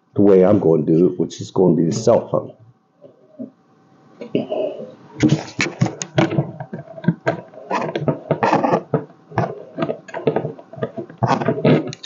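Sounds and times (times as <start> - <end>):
scraping: 4.3 - 12.0.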